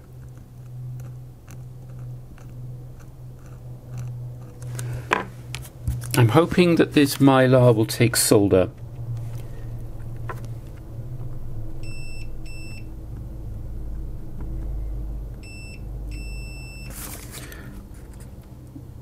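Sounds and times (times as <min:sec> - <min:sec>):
steady low hum: 0:00.0 - 0:19.0
multimeter beeping: 0:15.4 - 0:16.9.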